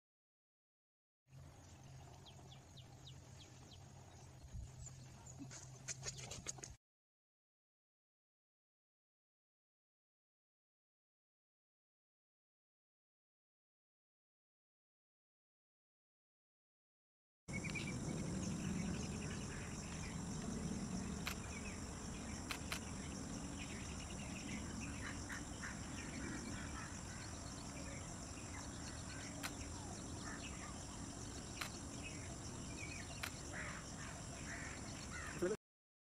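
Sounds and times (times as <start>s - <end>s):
birds calling: 17.5s - 35.6s
faint clicks: 21.2s - 21.5s, 22.5s - 22.9s, 29.4s - 29.7s, 31.6s - 31.8s, 33.2s - 33.4s.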